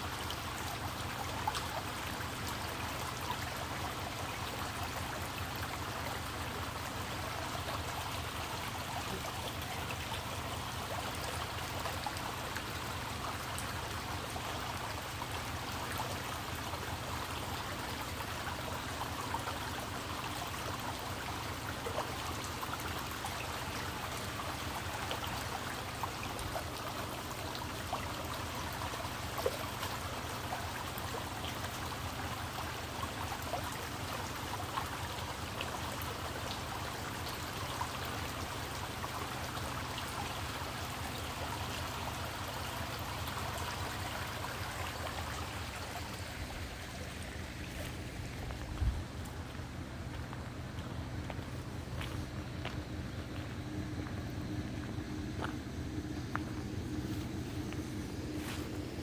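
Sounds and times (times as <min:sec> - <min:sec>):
creek babbling over stones: 0:00.0 - 0:59.0.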